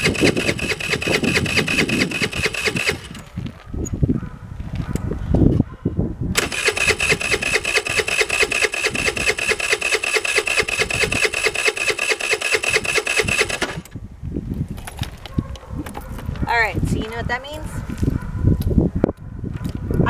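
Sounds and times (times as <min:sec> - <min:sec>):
scooter starter cranking engine: 0:00.0 - 0:03.3, 0:06.4 - 0:14.0.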